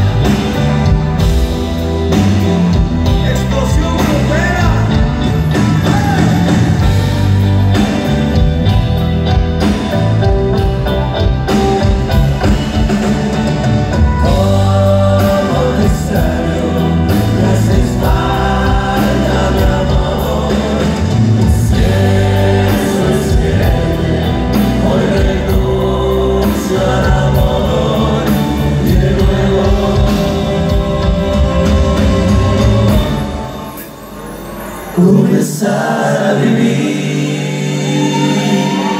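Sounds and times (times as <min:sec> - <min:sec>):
band playing live: 0:00.0 - 0:38.9
person singing: 0:13.0 - 0:34.0, 0:34.8 - 0:38.9.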